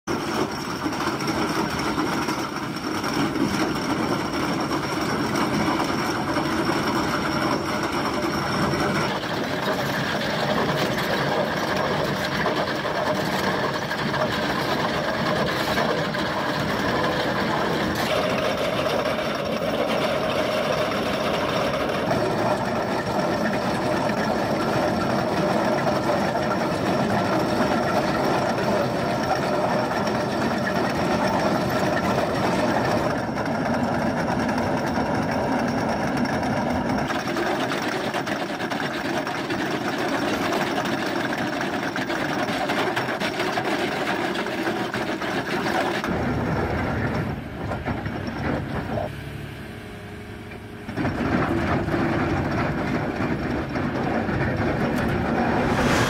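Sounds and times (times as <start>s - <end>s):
cutter chain grinding rock: 0.1s - 46.1s
diesel engine running: 46.0s - 56.0s.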